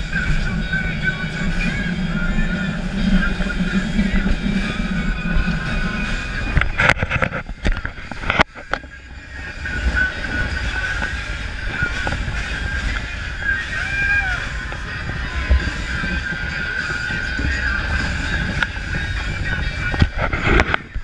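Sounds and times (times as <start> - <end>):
boat engine: 0.0 - 21.0
wind and water rushing: 0.0 - 21.0.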